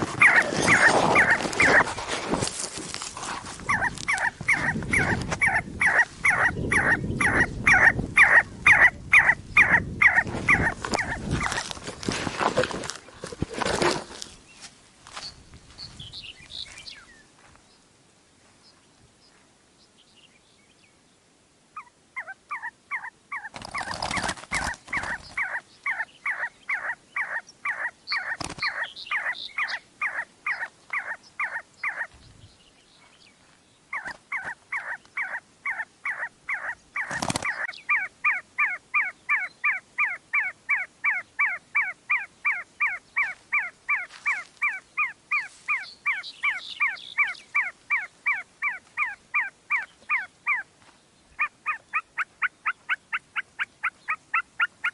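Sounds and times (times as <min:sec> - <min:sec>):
partridge chuck call: 0:00.0 - 0:01.9.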